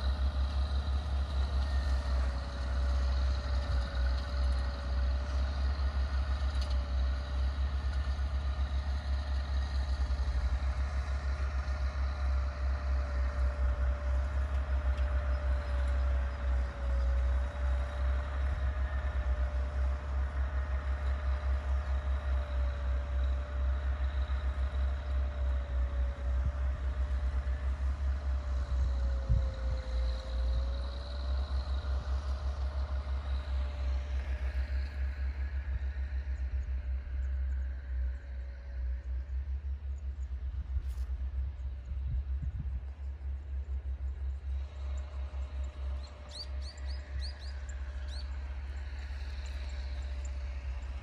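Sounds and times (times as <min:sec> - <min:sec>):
distant tractor engine running: 0:00.0 - 0:51.0
faint wavering whine: 0:07.4 - 0:51.0
wind on microphone: 0:42.0 - 0:42.8.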